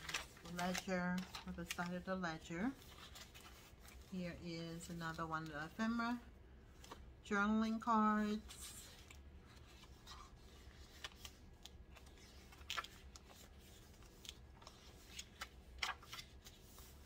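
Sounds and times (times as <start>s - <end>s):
paper rustling: 0.0s - 4.2s, 8.4s - 17.0s
low steady hum: 0.0s - 17.0s.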